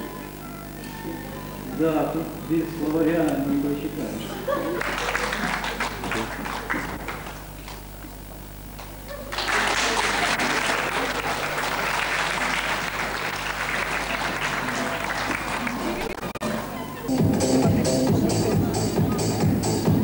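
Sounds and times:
audience applauding: 4.7 - 7.8, 9.1 - 16.4.

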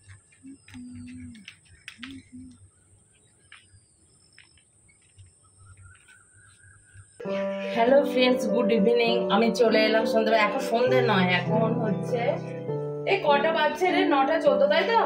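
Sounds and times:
brief low calls: 0.0 - 2.6
birds chirping: 0.0 - 8.5.

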